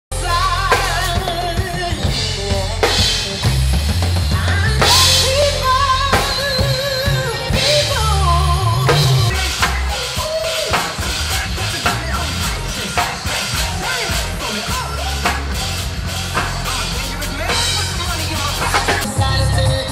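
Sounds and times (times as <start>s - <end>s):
drum kit playing: 0.1s - 19.9s
heavy bass line: 0.1s - 19.9s
song with sung melody: 0.1s - 19.9s.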